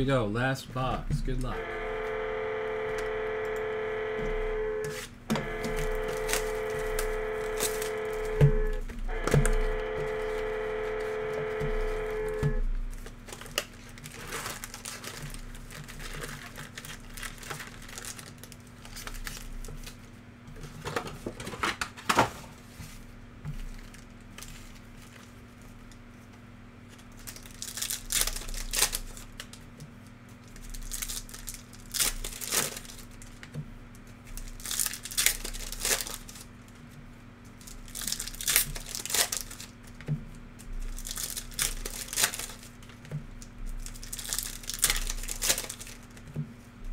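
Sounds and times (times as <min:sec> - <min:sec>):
low steady hum: 0:00.0 - 0:46.9
card pack wrappers tearing: 0:04.9 - 0:22.1, 0:26.9 - 0:36.8, 0:37.5 - 0:46.3.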